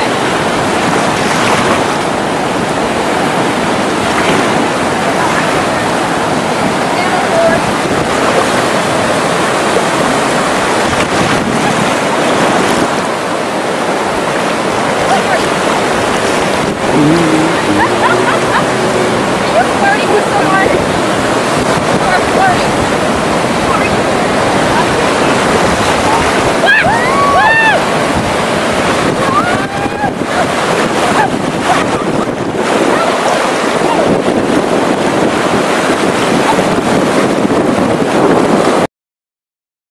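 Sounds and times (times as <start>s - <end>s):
ocean surf breaking: 0.0s - 38.9s
wind buffeting microphone: 0.0s - 38.9s.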